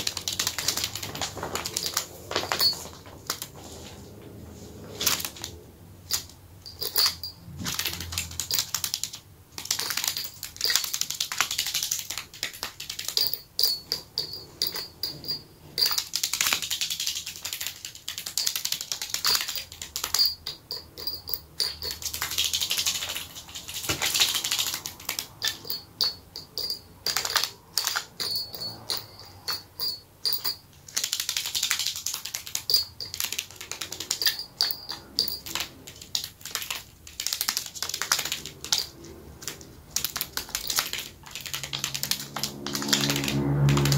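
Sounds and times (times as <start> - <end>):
bird feet pattering on paper: 0.0 - 3.6.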